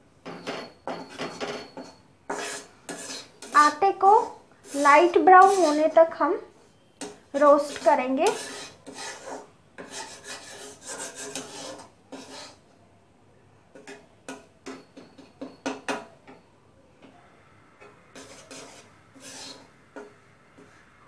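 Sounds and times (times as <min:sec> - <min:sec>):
spatula scraping flour in wok: 0:00.4 - 0:06.1, 0:07.0 - 0:12.6, 0:18.1 - 0:21.0
spatula clacking on pan: 0:07.0 - 0:12.3, 0:13.8 - 0:16.4.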